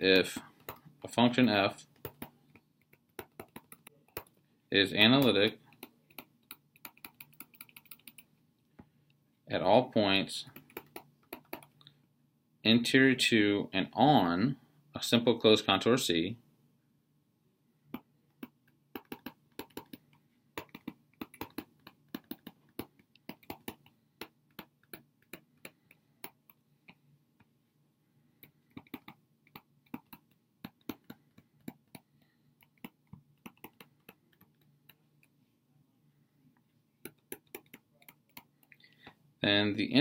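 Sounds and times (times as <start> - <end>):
stylus tapping on tablet: 0.6 - 0.9, 2.0 - 4.4, 5.2 - 8.3, 10.5 - 11.8, 17.9 - 27.5, 28.4 - 35.3, 37.0 - 38.7.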